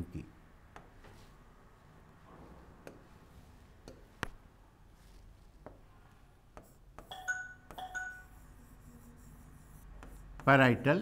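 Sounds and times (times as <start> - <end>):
pen tapping on glass screen: 2.8 - 3.1, 3.8 - 4.4, 6.5 - 8.3.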